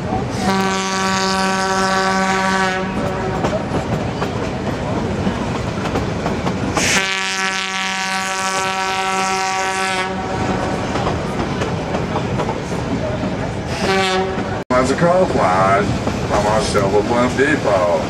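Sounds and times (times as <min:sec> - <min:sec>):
train rolling on track: 0:00.0 - 0:18.0
locomotive horn blasts: 0:00.4 - 0:03.4, 0:06.8 - 0:10.4, 0:13.7 - 0:14.6.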